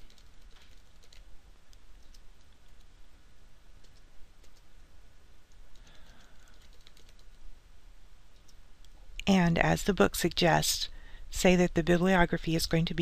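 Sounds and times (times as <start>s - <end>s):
keyboard typing clicks: 0.0s - 2.9s, 3.8s - 4.7s, 5.5s - 7.4s.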